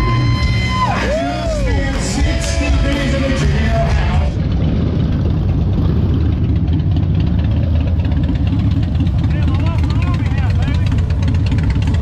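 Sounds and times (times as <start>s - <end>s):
live music: 0.0s - 4.3s
crowd: 0.0s - 4.5s
motorcycle engines idling: 0.0s - 12.0s.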